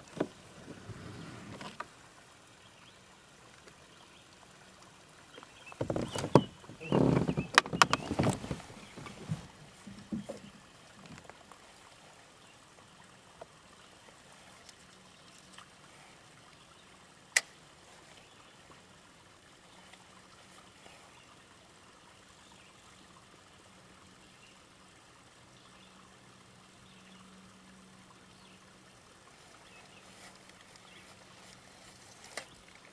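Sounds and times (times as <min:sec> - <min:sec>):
water trickling and lapping: 0:00.0 - 0:32.9
small ticks: 0:14.6 - 0:15.8.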